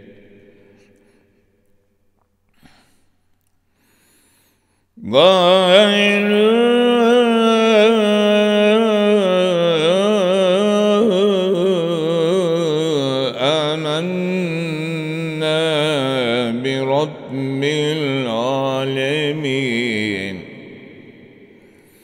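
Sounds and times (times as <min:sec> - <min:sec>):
man chanting melodically: 0:00.0 - 0:01.0, 0:05.0 - 0:21.6.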